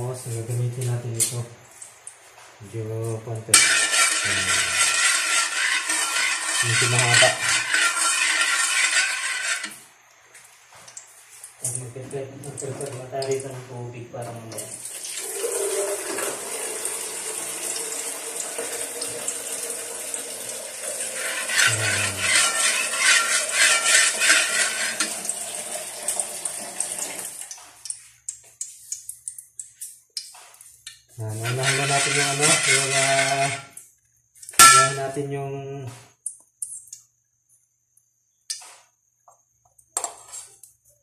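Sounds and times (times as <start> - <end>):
tap water running: 3.5 - 9.8, 10.4 - 13.6, 14.4 - 33.8
dishes and utensils clinking: 34.6 - 35.1.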